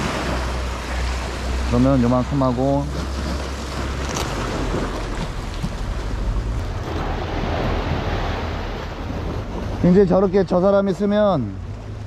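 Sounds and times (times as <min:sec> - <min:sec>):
sea waves washing on rocks: 0:00.0 - 0:12.0
wind rumbling on microphone: 0:02.9 - 0:10.5.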